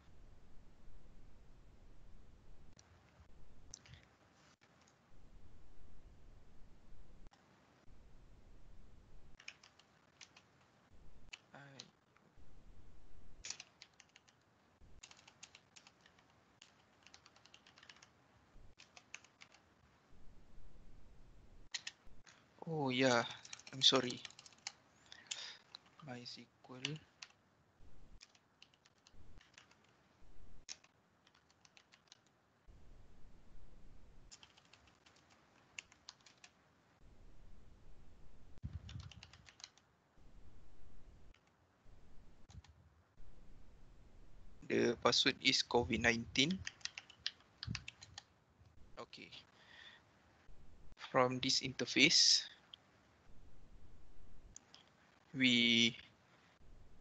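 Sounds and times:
computer keyboard typing: 9.3s - 10.7s, 13.4s - 19.6s, 21.7s - 22.1s, 23.2s - 26.0s, 26.8s - 27.4s, 28.2s - 30.0s, 30.6s - 32.3s, 34.3s - 36.6s, 38.8s - 39.8s, 46.3s - 48.3s.

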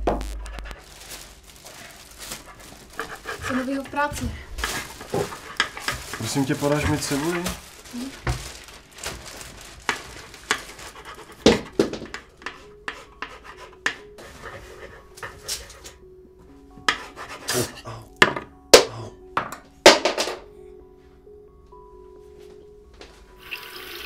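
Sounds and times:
utensils and dishes clinking: 4.6s - 8.5s
low musical drone: 11.7s - 23.4s.

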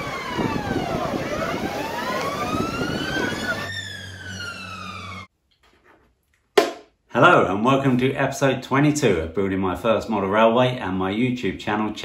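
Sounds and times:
siren wailing: 0.0s - 5.3s.

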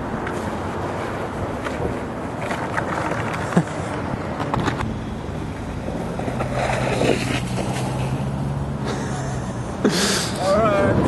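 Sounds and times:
snowskate scraping over snow: 6.2s - 8.3s.

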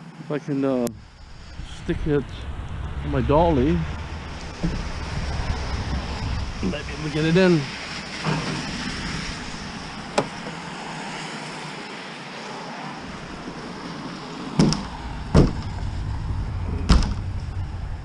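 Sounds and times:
loud metal bangs and thumps: 3.8s - 10.5s, 14.6s - 17.9s.

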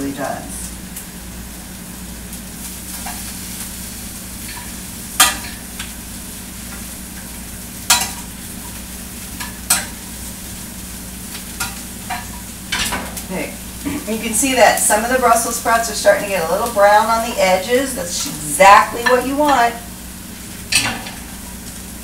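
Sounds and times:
vegetables sizzling in a skillet: 0.0s - 22.0s
utensil striking a pan: 4.4s - 5.9s, 7.8s - 8.3s, 9.4s - 10.0s, 11.6s - 13.2s.

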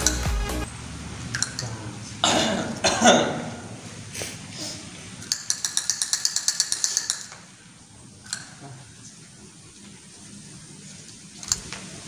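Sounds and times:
person coughing: 2.2s - 3.6s
fast even clicking: 5.2s - 7.4s.

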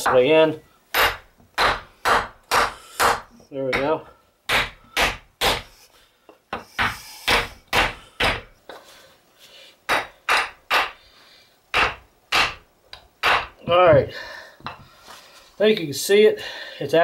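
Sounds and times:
hammer striking wood block: 0.9s - 3.9s, 4.5s - 5.7s, 6.5s - 8.5s, 9.9s - 11.0s, 11.7s - 12.6s, 13.2s - 13.8s.

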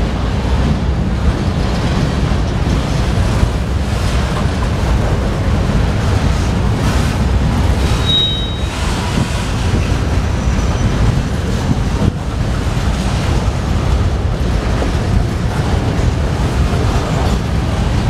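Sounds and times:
freight train cars rolling past: 0.0s - 18.0s
high wheel squeal: 7.8s - 9.3s.

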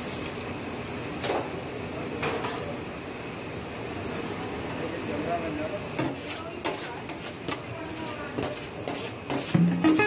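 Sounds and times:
food sizzling hiss: 5.8s - 10.0s
utensil knocking against pan: 9.3s - 10.0s.

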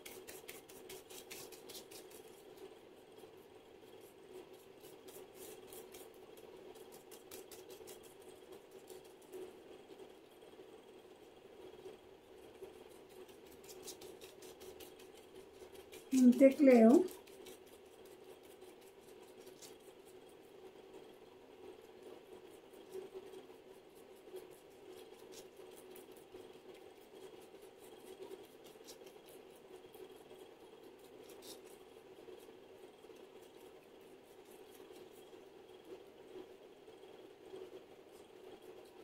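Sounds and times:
fingertips tapping on skin: 0.0s - 2.7s, 4.0s - 9.5s, 12.7s - 20.2s, 22.4s - 32.4s
low room hum: 0.0s - 39.0s.

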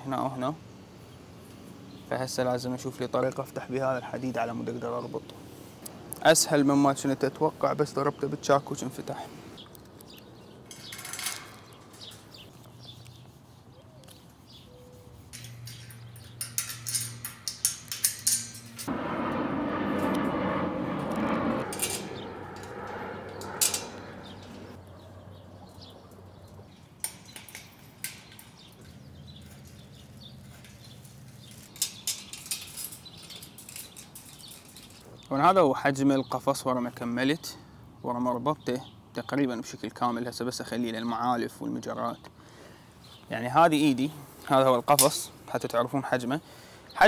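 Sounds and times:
wire cage clinking and rattling: 10.6s - 12.5s, 15.3s - 18.9s, 26.8s - 35.2s
steady rushing noise: 16.5s - 24.8s.

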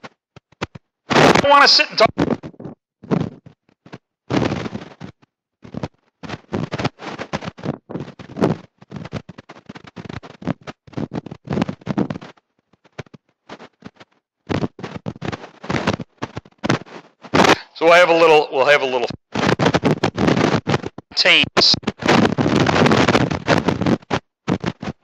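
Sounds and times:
man preaching: 1.2s - 2.1s, 17.4s - 19.1s, 21.2s - 21.8s.

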